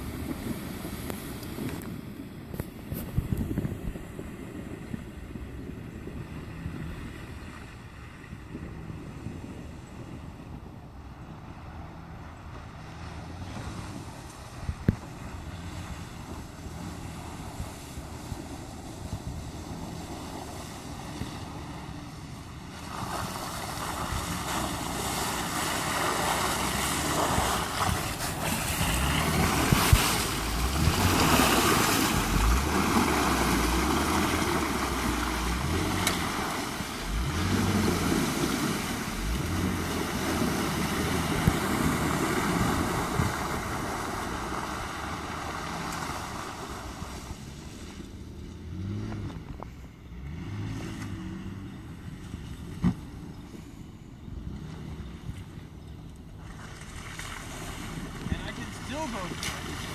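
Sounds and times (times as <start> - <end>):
tyres splashing through mud: 11.6 - 53.6, 54.3 - 59.9.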